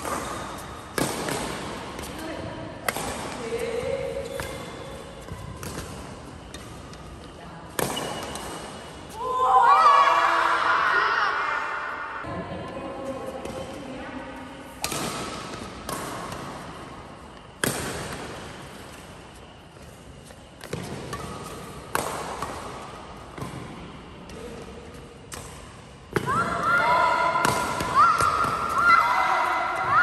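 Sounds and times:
rackets striking shuttlecock: 0:02.8 - 0:08.9, 0:14.8 - 0:16.7, 0:20.6 - 0:26.3
sports shoes squeaking on floor: 0:03.5 - 0:09.2.

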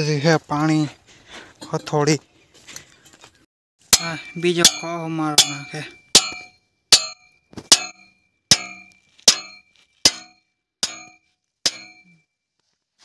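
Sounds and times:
hammer striking iron: 0:03.9 - 0:12.2.

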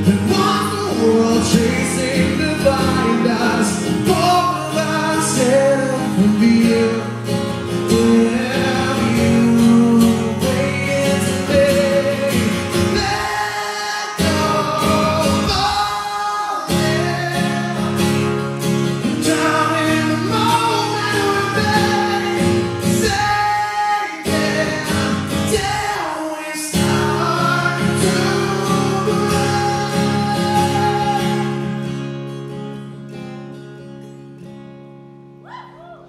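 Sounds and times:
man singing lead vocal: 0:00.0 - 0:31.9
acoustic guitar: 0:00.0 - 0:36.0
drums: 0:14.2 - 0:17.1.

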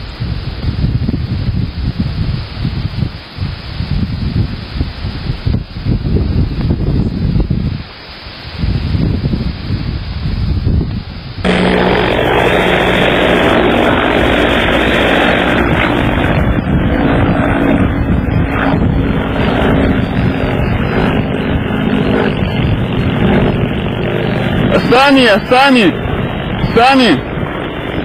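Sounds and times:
helicopter flying overhead: 0:11.4 - 0:28.0.

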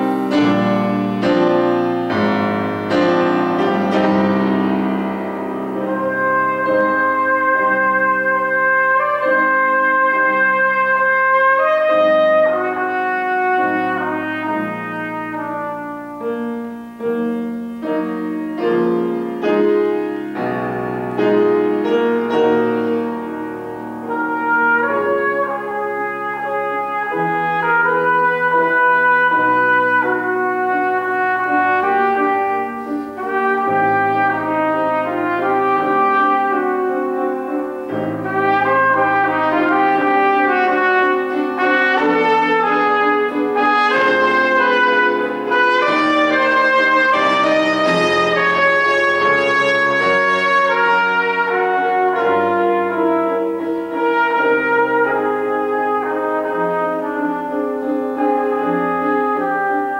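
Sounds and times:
piano accompaniment: 0:00.0 - 0:59.9
trumpet melody: 0:00.0 - 0:59.9.

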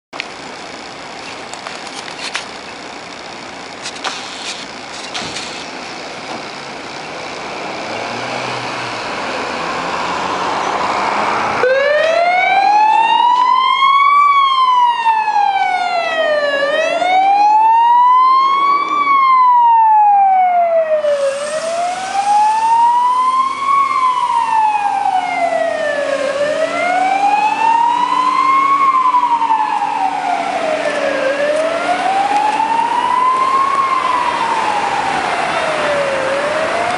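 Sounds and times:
fire engine engine noise: 0:00.2 - 0:36.9
siren wailing: 0:10.4 - 0:36.9.

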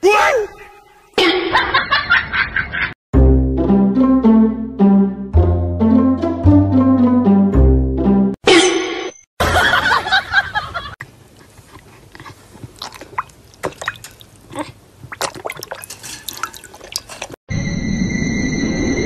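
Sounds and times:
dog lapping water: 0:11.4 - 0:14.5, 0:15.1 - 0:17.4.

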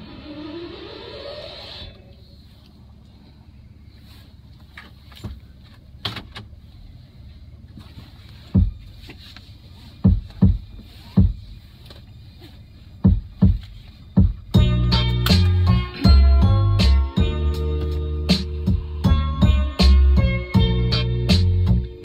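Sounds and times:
car cabin rumble: 0:00.0 - 0:22.0
dull thumps: 0:08.6 - 0:09.1, 0:10.0 - 0:11.6, 0:13.0 - 0:14.7.

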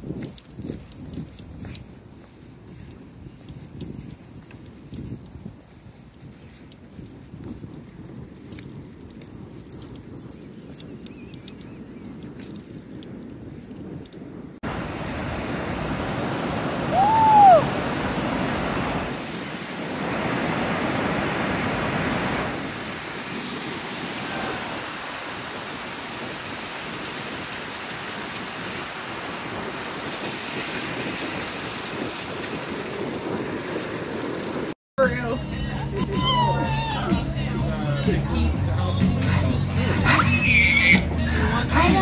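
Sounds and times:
ocean surf on beach: 0:14.6 - 0:34.8
high rising and falling call: 0:16.8 - 0:17.9, 0:40.2 - 0:41.2.

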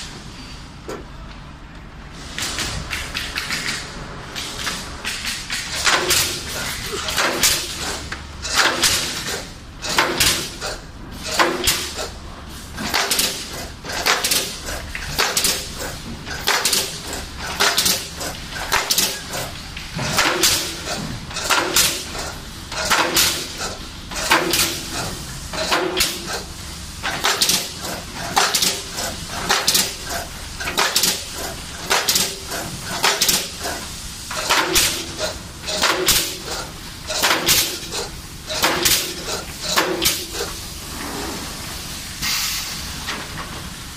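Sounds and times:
low machine rumble: 0:00.0 - 0:11.3
low machine hum: 0:00.0 - 0:42.1
nailing heads firing with hiss and clatter: 0:02.1 - 0:43.9
nail gun shots: 0:05.7 - 0:07.8, 0:08.6 - 0:09.3, 0:12.8 - 0:14.6, 0:37.2 - 0:37.9.

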